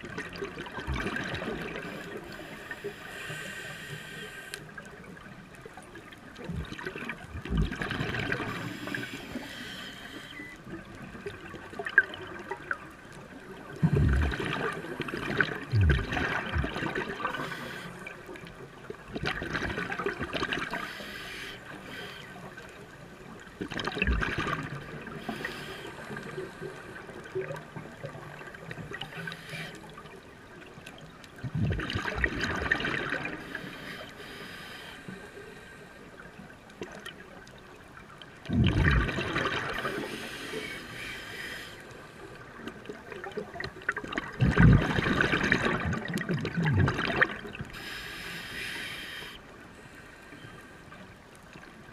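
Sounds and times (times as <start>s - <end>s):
underwater regulator bubbles: 0.0s - 2.5s, 6.4s - 10.1s, 13.7s - 17.8s, 23.6s - 26.6s, 31.4s - 33.9s, 38.4s - 40.9s, 42.6s - 47.9s
water hiss: 1.6s - 4.8s, 8.5s - 10.5s, 17.2s - 18.1s, 20.7s - 22.4s, 25.1s - 26.7s, 29.0s - 30.0s, 33.3s - 35.8s, 39.6s - 42.4s, 47.6s - 50.6s.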